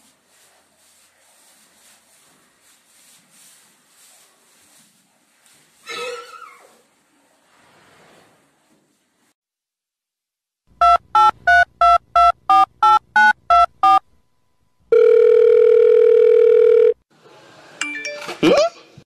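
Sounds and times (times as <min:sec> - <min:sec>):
telephone dialing beeps: 0:10.8 - 0:14.0, 0:15.0 - 0:17.0
steady telephone tone: 0:14.9 - 0:17.0.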